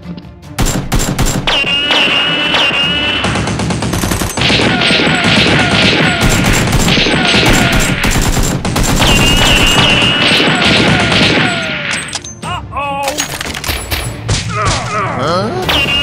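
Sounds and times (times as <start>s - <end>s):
background music: 0.0s - 16.0s
rapid automatic gunfire: 0.6s - 11.7s.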